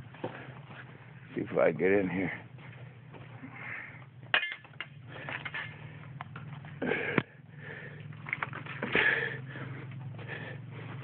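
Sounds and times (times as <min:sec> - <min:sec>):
crunching footsteps: 0:00.0 - 0:04.3, 0:08.1 - 0:11.0.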